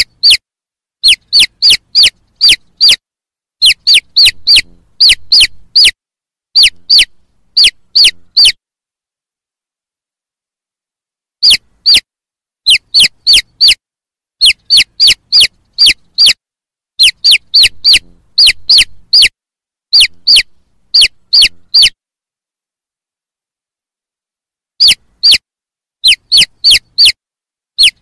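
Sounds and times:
chick peeping: 0:00.0 - 0:00.4, 0:01.0 - 0:03.0, 0:03.6 - 0:06.0, 0:06.6 - 0:08.6, 0:11.4 - 0:12.0, 0:12.7 - 0:13.8, 0:14.4 - 0:16.4, 0:17.0 - 0:19.3, 0:19.9 - 0:22.0, 0:24.8 - 0:25.4, 0:26.0 - 0:27.2, 0:27.8 - 0:28.0.

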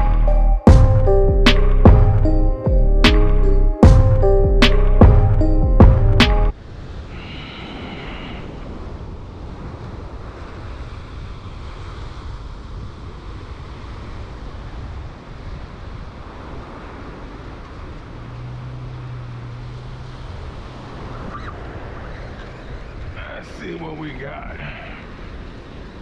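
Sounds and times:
wind buffeting microphone: 0:03.8 - 0:26.0
surf breaking on beach: 0:06.5 - 0:26.0.

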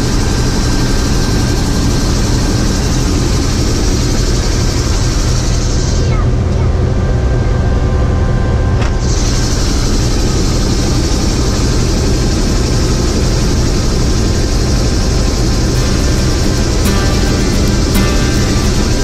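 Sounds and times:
helicopter engine and rotor drone: 0:00.0 - 0:19.0
high hiss: 0:15.8 - 0:19.0.

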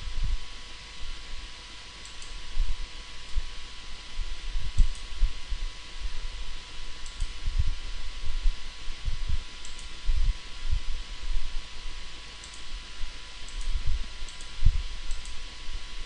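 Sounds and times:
faint steady whine: 0:00.0 - 0:16.0
faint short clicks: 0:09.6 - 0:09.9, 0:13.5 - 0:15.4.

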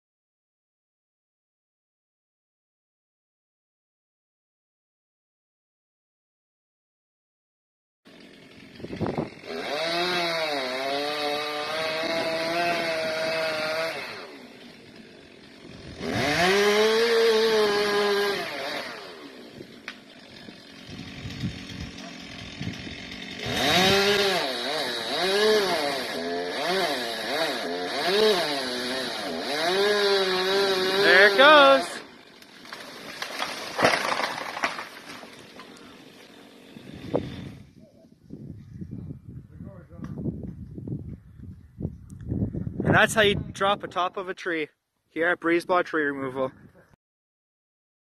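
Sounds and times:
chainsaw cutting wood: 0:08.1 - 0:37.8.

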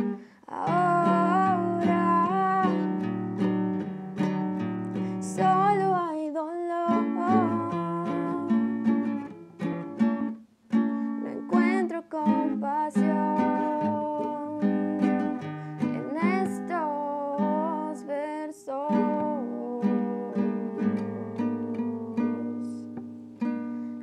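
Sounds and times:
woman singing a slow ballad: 0:00.0 - 0:03.0, 0:05.1 - 0:08.8, 0:11.2 - 0:23.0
acoustic guitar chords: 0:00.0 - 0:24.0.

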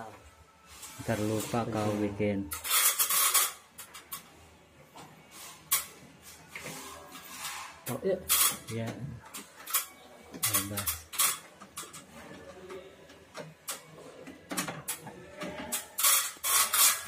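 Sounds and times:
electrical cables clattering and rustling: 0:06.6 - 0:17.0.

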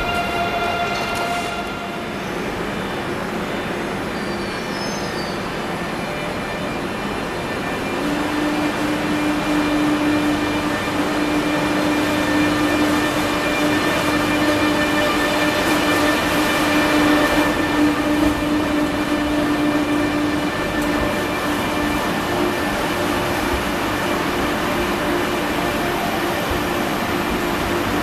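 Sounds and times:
electric train humming: 0:00.0 - 0:28.0.

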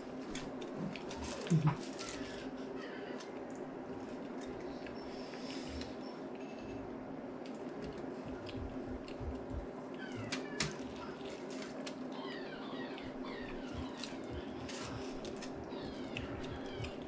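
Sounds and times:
biting and chewing taco: 0:07.4 - 0:17.0.

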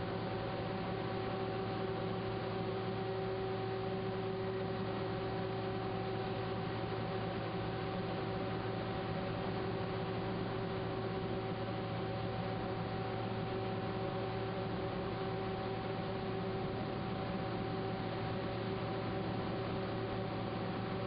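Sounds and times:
steady hum with hiss: 0:00.0 - 0:21.0.

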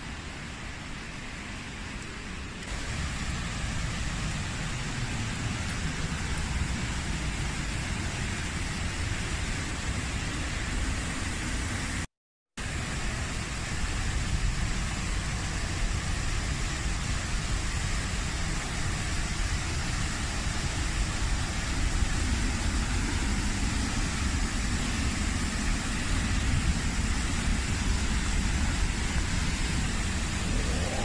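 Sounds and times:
waterfall rushing: 0:02.7 - 0:08.6, 0:14.9 - 0:31.0
low rumble: 0:22.6 - 0:31.0.

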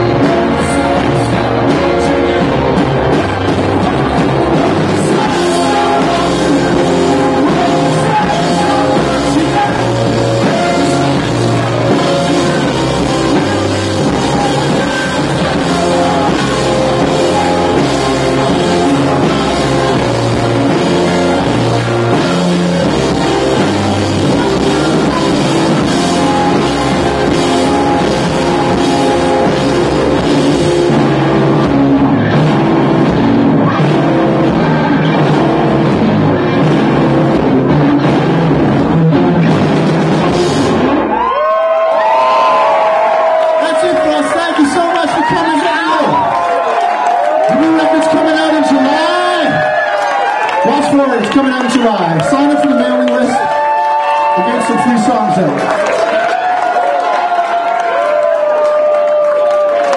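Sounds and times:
person singing: 0:00.0 - 0:30.8
drum kit: 0:00.0 - 0:59.9
electric guitars: 0:00.0 - 0:59.9.

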